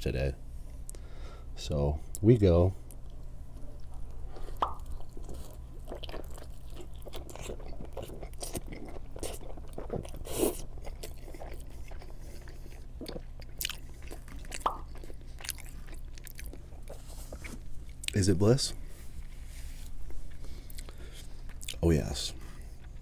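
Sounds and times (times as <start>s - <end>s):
biting and chewing pizza: 4.3s - 18.2s.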